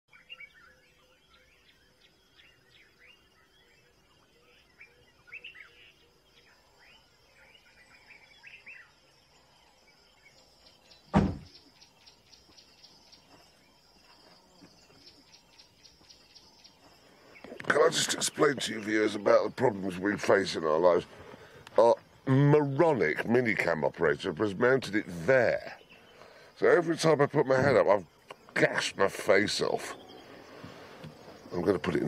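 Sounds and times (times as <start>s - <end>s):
birds chirping and whistling: 0.1s - 32.0s
loud thump: 11.1s - 11.6s.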